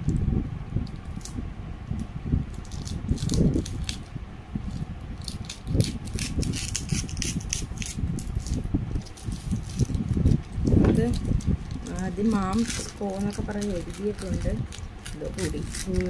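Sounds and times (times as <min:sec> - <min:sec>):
plastic crinkling: 0:02.5 - 0:16.0
scissors snipping plastic: 0:05.2 - 0:16.0.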